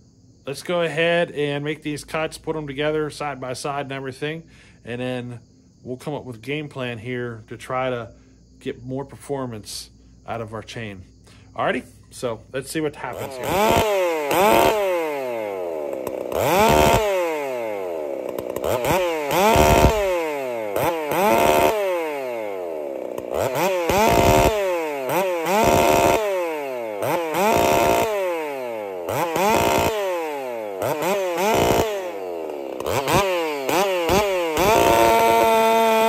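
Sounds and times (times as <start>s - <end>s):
chainsaw revving: 11.7s - 36.0s.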